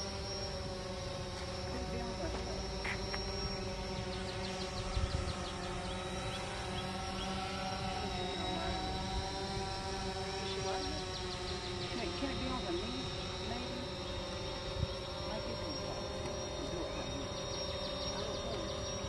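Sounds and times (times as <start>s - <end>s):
drone propellers buzzing: 0.0s - 19.0s.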